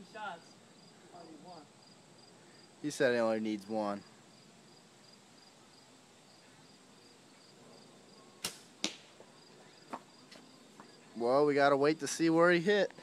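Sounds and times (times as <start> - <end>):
crickets chirping: 0.0 - 13.0
bow string snap: 8.4 - 9.1
arrow striking target: 8.4 - 9.2.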